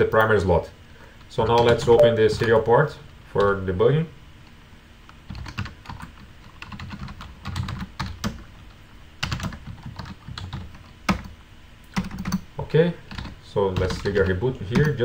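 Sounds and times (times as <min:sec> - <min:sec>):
computer keyboard typing: 0:05.3 - 0:08.4, 0:09.2 - 0:12.4, 0:13.1 - 0:15.0.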